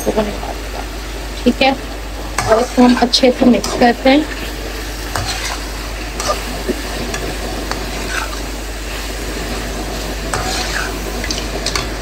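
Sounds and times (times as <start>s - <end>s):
chicken sizzling in oil: 0.0s - 12.0s
spoon scraping a pan: 2.4s - 8.6s, 10.2s - 12.0s.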